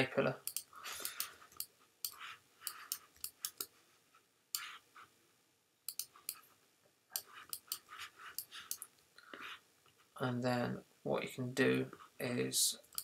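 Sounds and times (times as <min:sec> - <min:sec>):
faint computer mouse clicking: 0:00.4 - 0:03.7, 0:05.9 - 0:06.4, 0:07.2 - 0:09.0.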